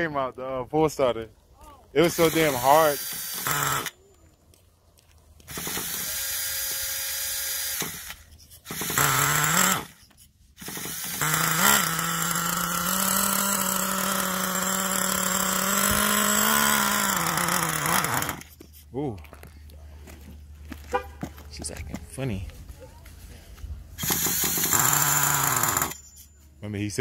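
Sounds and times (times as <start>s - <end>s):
small nitro engine buzzing: 2.0s - 4.0s, 5.5s - 18.6s, 24.0s - 26.2s.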